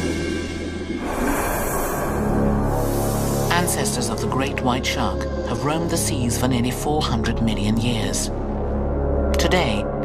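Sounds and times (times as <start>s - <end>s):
hissing swell: 0.0s - 4.4s
low drone: 0.0s - 10.0s
suspenseful background music: 0.0s - 10.0s.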